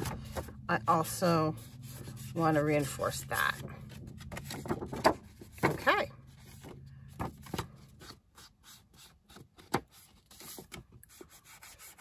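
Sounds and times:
paper pages rubbing: 1.5 - 6.8, 7.9 - 12.0.

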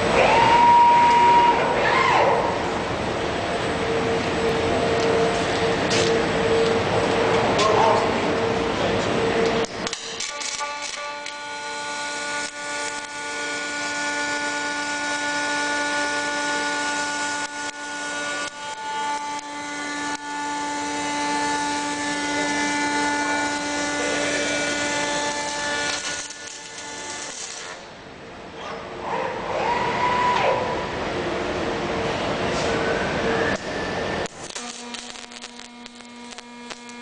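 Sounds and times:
steady humming tones: 0.0 - 37.0
welding arc crackling and hissing: 9.8 - 14.5, 25.8 - 27.9, 33.6 - 37.0.

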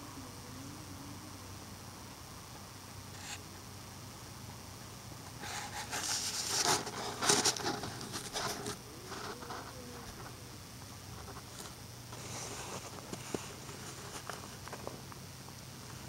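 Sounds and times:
faint low hum: 0.0 - 16.0
handling noise: 5.3 - 10.4
footsteps crunching on snow: 5.5 - 8.8.

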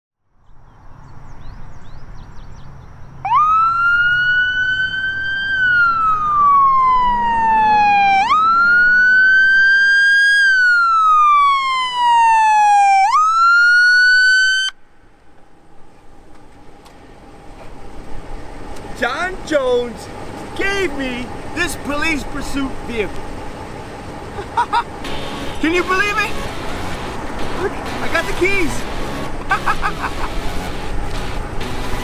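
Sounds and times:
police siren wailing: 3.2 - 14.8, 24.4 - 32.0
rushing noise: 17.0 - 32.0.

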